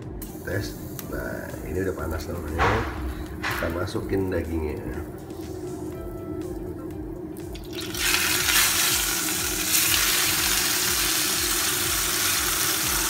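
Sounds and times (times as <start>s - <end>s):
steak sizzling in oil: 7.5s - 13.0s.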